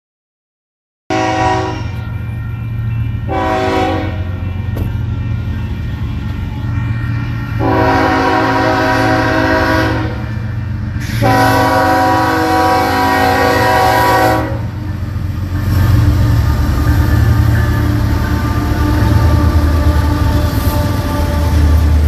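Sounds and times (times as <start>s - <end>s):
locomotive air horn blasts: 1.1s - 2.2s, 3.2s - 14.8s, 17.6s - 22.0s
diesel locomotive rumble: 1.1s - 22.0s.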